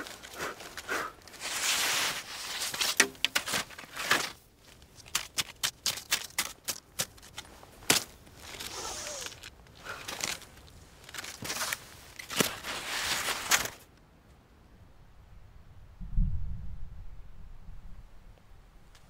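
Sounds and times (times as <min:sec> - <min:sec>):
skis swishing on snow: 0:00.0 - 0:05.3, 0:07.0 - 0:13.8.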